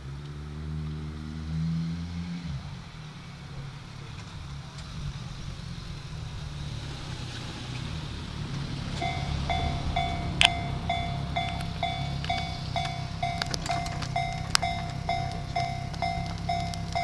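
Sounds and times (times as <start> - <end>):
low steady rumble: 2.5 - 17.0
level-crossing warning bell ringing: 8.9 - 17.0.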